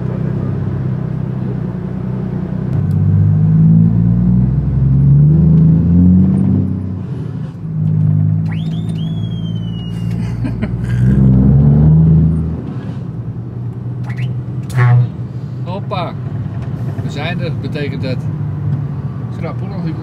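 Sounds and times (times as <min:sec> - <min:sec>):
truck diesel engine accelerating: 0:00.0 - 0:20.0.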